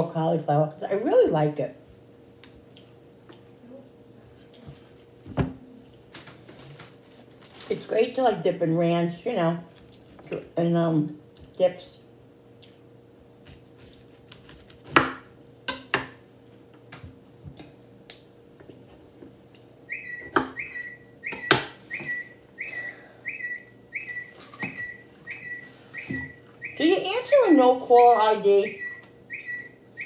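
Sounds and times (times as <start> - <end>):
smartphone ringing beeps: 20.0 - 26.8.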